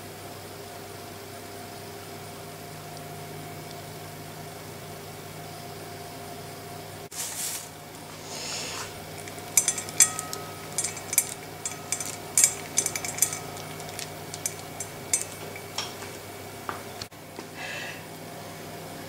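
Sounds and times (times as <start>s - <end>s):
low background hum: 1.6s - 19.0s
nuts clicking into a bowl: 9.0s - 16.2s.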